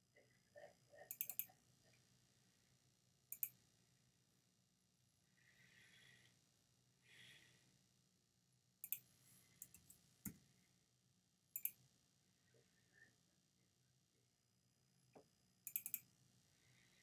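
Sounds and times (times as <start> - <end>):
computer mouse clicks: 1.1 - 1.5, 3.3 - 3.6, 8.8 - 10.4, 11.6 - 11.8, 15.7 - 16.1.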